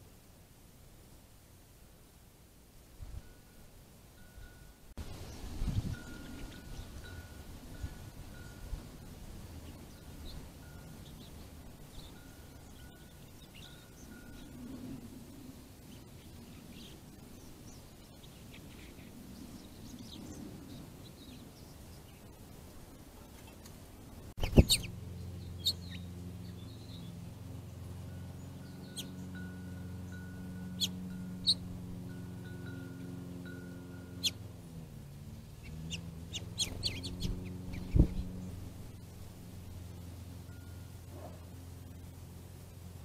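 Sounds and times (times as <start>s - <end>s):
steady low hum: 2.7s - 43.0s
small birds chirping: 5.1s - 15.0s, 15.8s - 34.5s, 35.1s - 42.2s.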